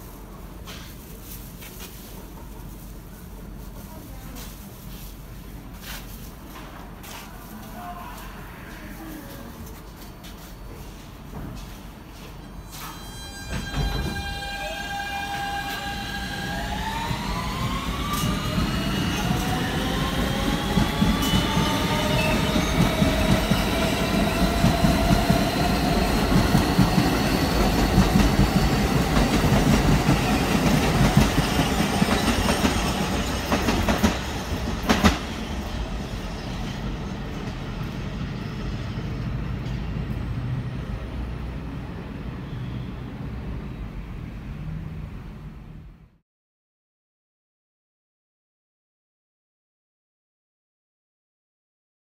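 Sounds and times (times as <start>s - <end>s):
rumbling train wheels: 13.4s - 40.5s.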